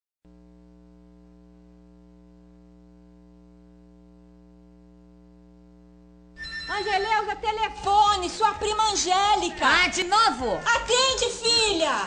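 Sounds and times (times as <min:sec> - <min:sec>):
electrical mains hum: 0:00.3 - 0:12.0.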